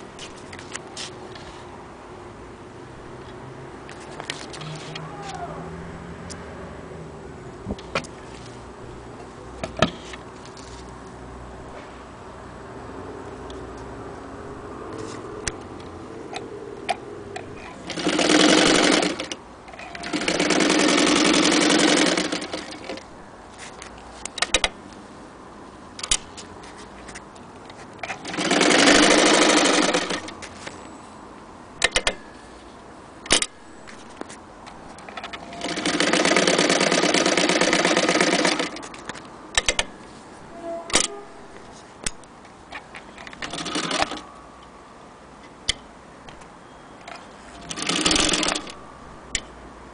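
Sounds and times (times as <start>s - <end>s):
sharp clicks and knocks: 7.7s - 8.2s, 23.8s - 24.8s, 26.0s - 28.2s, 31.8s - 32.3s, 38.8s - 40.0s, 49.3s - 49.5s
sewing machine stitching: 17.6s - 23.0s, 28.0s - 30.3s, 35.4s - 38.8s, 43.4s - 44.2s, 47.6s - 48.8s.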